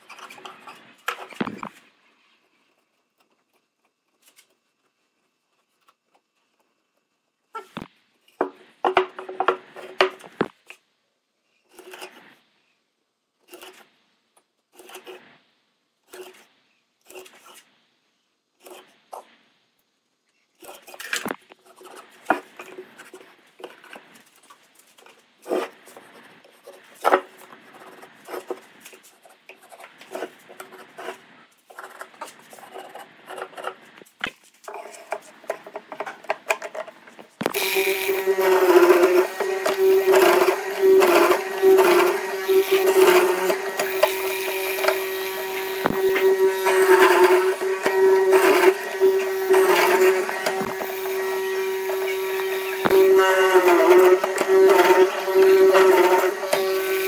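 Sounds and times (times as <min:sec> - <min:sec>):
scraping strokes on wood: 0:37.5 - 0:57.0.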